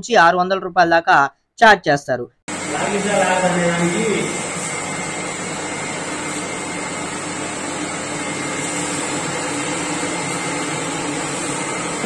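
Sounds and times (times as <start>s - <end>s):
range hood fan rushing air: 2.5s - 12.0s.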